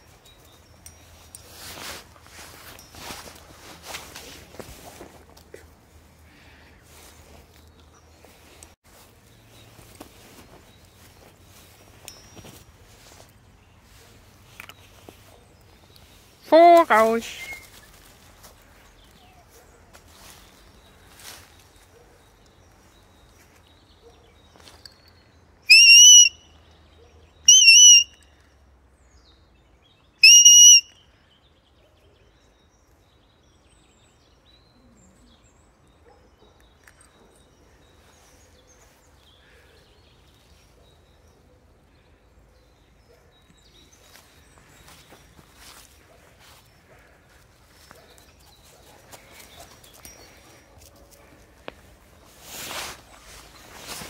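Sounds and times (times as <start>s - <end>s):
shrill dog whistle blasts: 25.7s - 26.4s, 27.5s - 28.2s, 30.2s - 30.9s.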